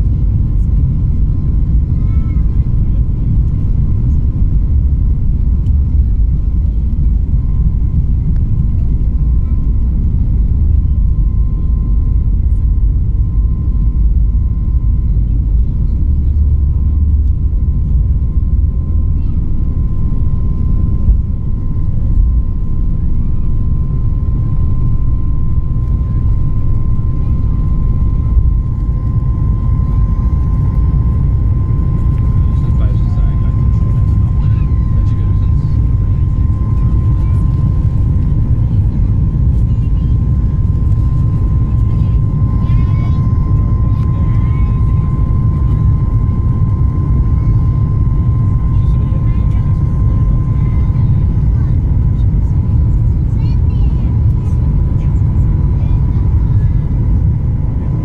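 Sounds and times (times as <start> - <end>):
jet engines rumbling: 0.0 - 58.0
thin steady whine: 0.0 - 58.0.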